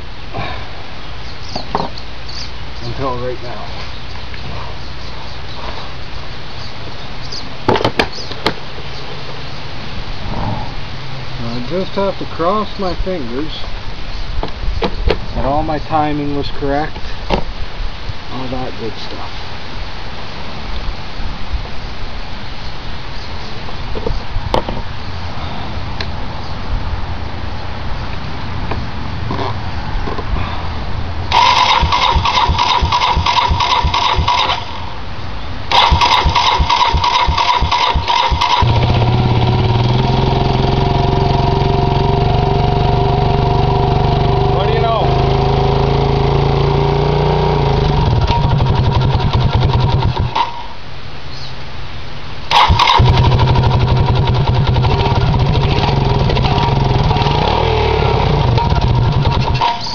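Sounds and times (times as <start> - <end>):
electric starter cranking engine: 31.3 - 34.8, 35.7 - 46.7, 47.4 - 50.6, 52.5 - 59.9
engine idling: 31.3 - 35.0, 35.7 - 50.4, 52.5 - 59.9.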